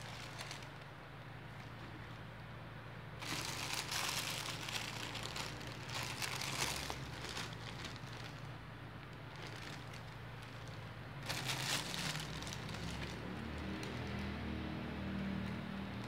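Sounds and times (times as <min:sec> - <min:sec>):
plastic bags crinkling: 0:00.0 - 0:00.9, 0:03.2 - 0:14.2.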